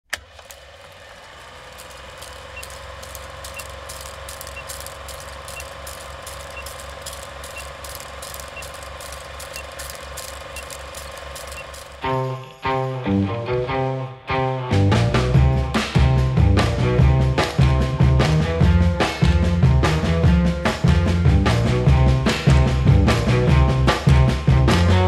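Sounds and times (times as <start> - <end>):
film crackle: 0.1 - 12.2
film projector whirring clatter: 0.1 - 12.2
short faint beep: 2.6 - 2.8, 3.4 - 11.9
guitar music: 12.0 - 25.0.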